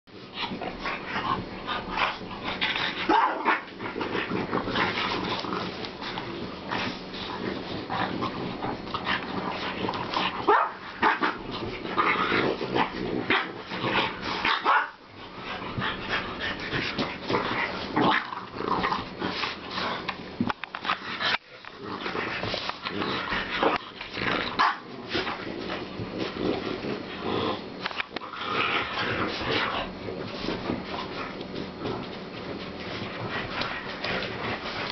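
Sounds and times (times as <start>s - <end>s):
dogs growling: 0.2s - 34.9s
dogs barking and yipping: 2.9s - 3.8s, 10.4s - 11.4s, 14.4s - 15.1s.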